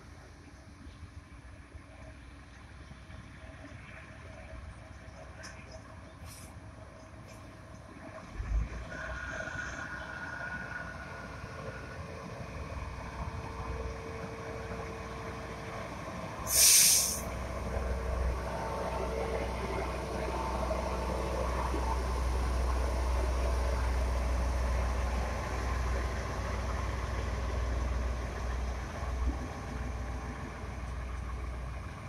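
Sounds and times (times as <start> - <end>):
diesel engines rumbling: 0.0 - 32.0
compressed air hiss: 16.5 - 17.3.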